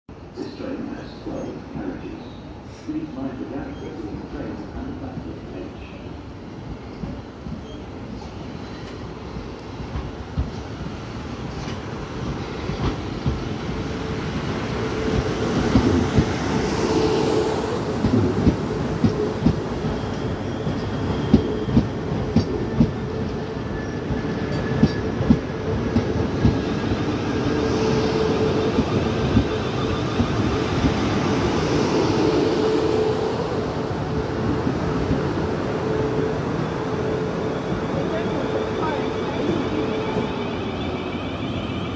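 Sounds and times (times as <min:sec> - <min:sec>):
electric train hum: 0:08.4 - 0:41.9.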